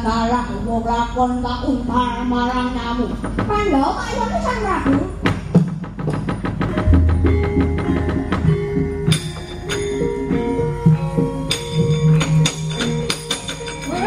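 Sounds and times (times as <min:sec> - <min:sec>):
gamelan playing: 0:06.7 - 0:14.0.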